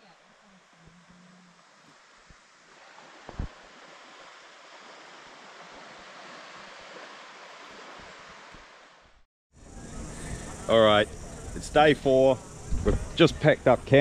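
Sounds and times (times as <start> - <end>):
surf washing on beach: 0.0 - 14.0
wind: 0.0 - 14.0
low thump: 3.3 - 3.6, 12.7 - 13.2.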